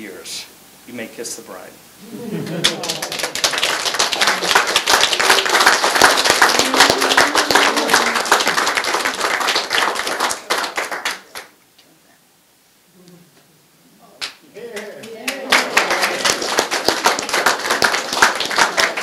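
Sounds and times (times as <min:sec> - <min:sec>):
group applauding: 0:02.2 - 0:11.6, 0:14.2 - 0:19.0
voices: 0:06.4 - 0:08.4, 0:13.0 - 0:16.6.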